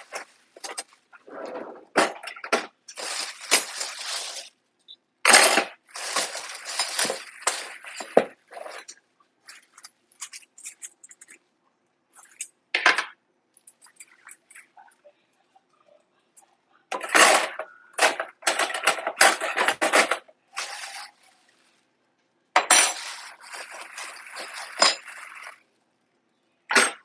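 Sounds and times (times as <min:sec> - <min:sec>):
dishes and utensils clinking: 0:22.6 - 0:25.6
dishes clattering: 0:22.6 - 0:25.6.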